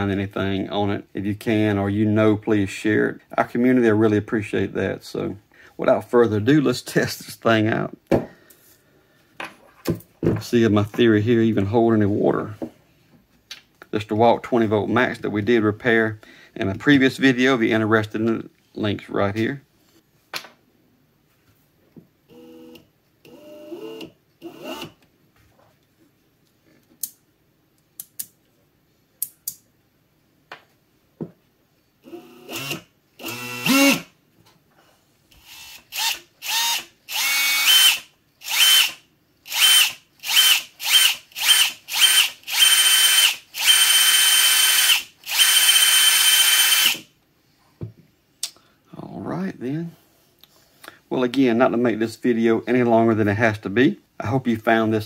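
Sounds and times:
drill motor whining: 32.1s - 34.0s, 35.4s - 47.0s.

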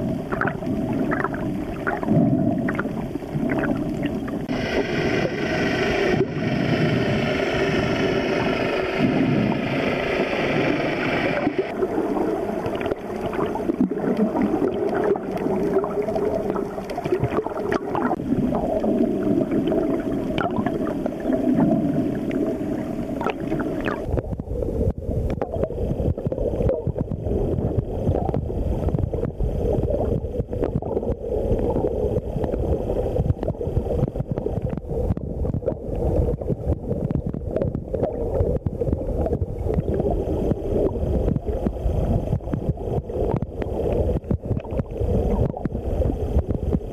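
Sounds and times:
muffled underwater rumbling: 0.0s - 46.9s
steady low tone: 1.5s - 16.1s
underwater clicks: 12.6s - 18.2s, 42.4s - 46.9s.

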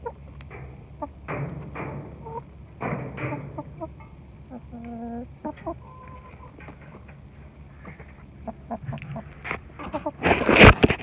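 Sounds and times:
chickens clucking: 0.0s - 11.0s
rustling at microphone: 8.8s - 11.0s.

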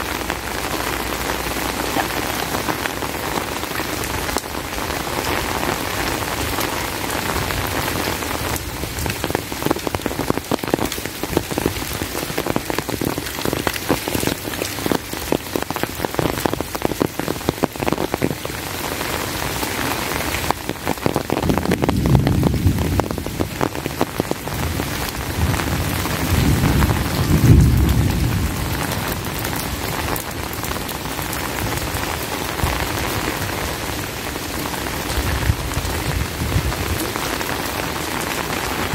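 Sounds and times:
heavy rain: 0.0s - 38.9s
thunder rumbling: 21.3s - 30.7s.

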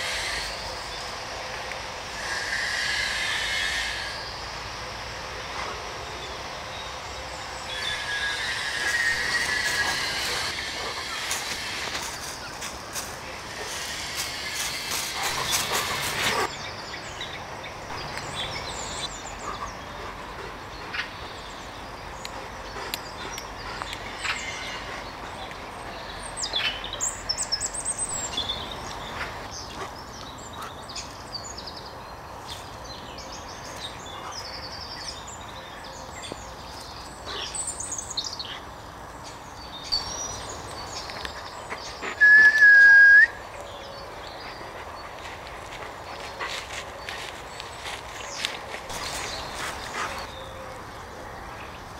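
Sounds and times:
small birds chirping: 6.1s - 42.7s, 43.4s - 51.9s
rustling through dry leaves: 7.7s - 16.6s, 45.1s - 51.1s
loud whistle note: 42.2s - 43.4s.

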